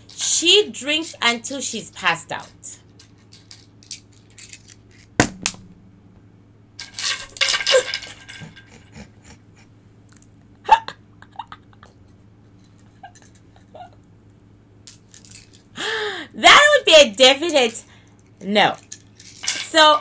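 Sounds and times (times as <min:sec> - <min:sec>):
shells clattering and rattling: 0:02.9 - 0:05.1, 0:06.8 - 0:08.9, 0:14.8 - 0:15.7, 0:17.4 - 0:20.0.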